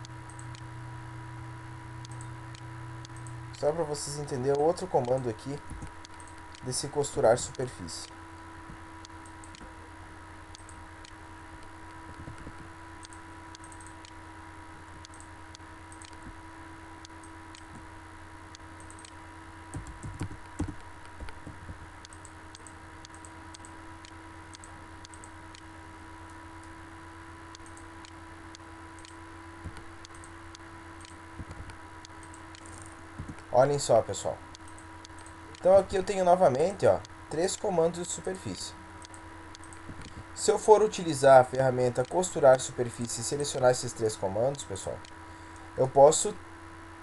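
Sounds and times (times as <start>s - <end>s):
steady electrical hum: 0.0s - 47.0s
computer mouse and keyboard clicks: 11.9s - 14.0s, 18.8s - 23.7s, 31.0s - 33.5s, 39.0s - 40.3s.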